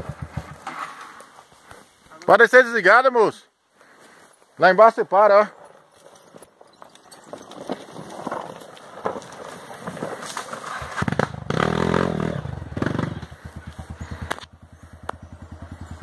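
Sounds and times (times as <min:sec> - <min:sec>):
dirt bike engine revving: 0:10.7 - 0:16.0.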